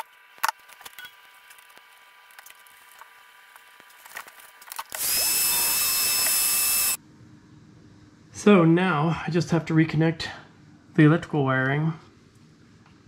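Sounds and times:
heat gun blowing with high whine: 4.9s - 7.0s.

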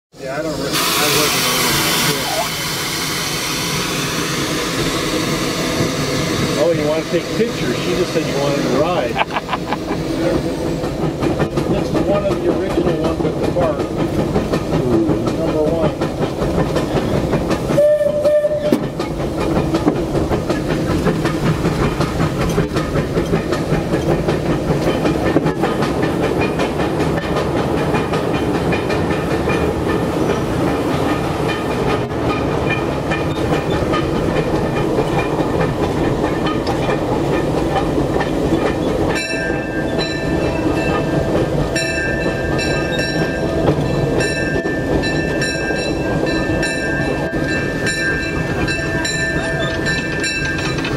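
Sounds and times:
steam locomotive rumble and clatter: 0.1s - 50.9s
bell ringing: 39.2s - 50.8s.

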